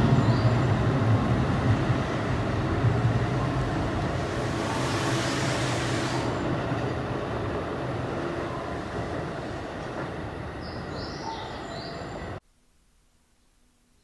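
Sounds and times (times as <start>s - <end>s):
train rolling rumble: 0.0s - 12.4s
hiss: 4.1s - 6.5s.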